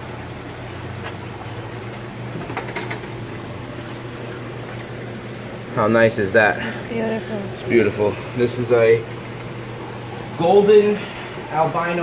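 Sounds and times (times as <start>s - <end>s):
aquarium pumps humming: 0.0s - 12.0s
clicks and knocks on plastic tub: 2.3s - 3.2s.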